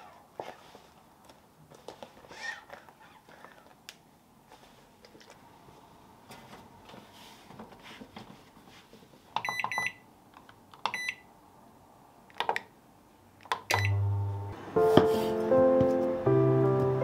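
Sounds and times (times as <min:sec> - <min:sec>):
microwave control panel beeping: 0:09.4 - 0:10.0, 0:10.9 - 0:11.2, 0:13.7 - 0:14.4
microwave humming: 0:13.7 - 0:14.8.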